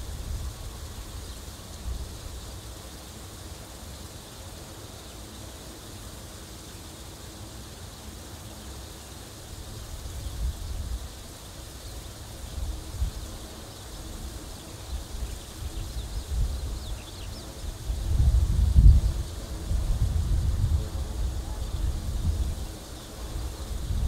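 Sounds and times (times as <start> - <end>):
outdoor hiss: 0.0 - 24.0
wind buffeting microphone: 15.0 - 24.0.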